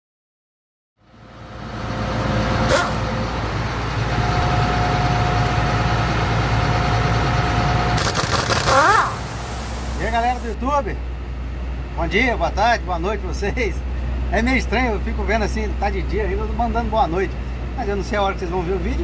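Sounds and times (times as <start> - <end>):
low mechanical hum: 1.0 - 19.0
pneumatic tool whine: 2.6 - 3.2, 8.0 - 10.6.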